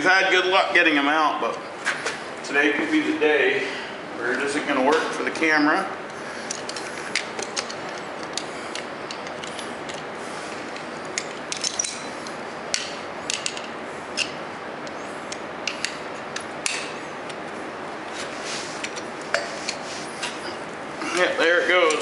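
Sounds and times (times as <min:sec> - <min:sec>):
tools clicking and scraping on metal: 0:06.4 - 0:17.4.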